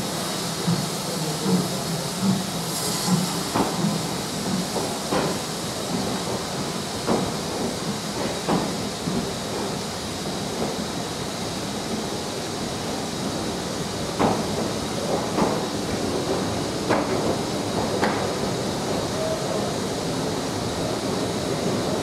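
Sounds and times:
hiss of escaping steam: 0:00.0 - 0:22.0
train wheels knocking over rail joints: 0:03.1 - 0:09.8, 0:14.2 - 0:18.6.

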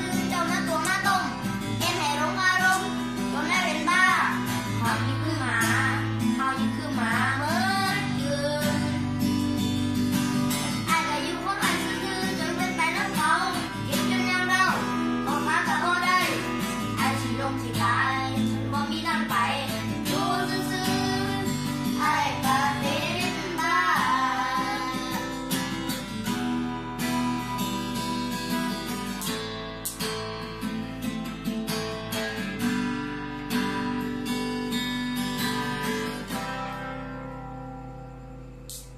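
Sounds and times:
children singing: 0:00.0 - 0:09.0, 0:10.6 - 0:25.9
acoustic guitar strumming: 0:00.0 - 0:38.9.

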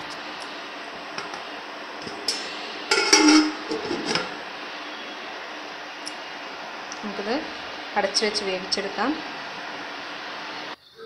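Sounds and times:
steady hiss: 0:00.0 - 0:11.0
glass pot lid clattering: 0:02.9 - 0:04.3.

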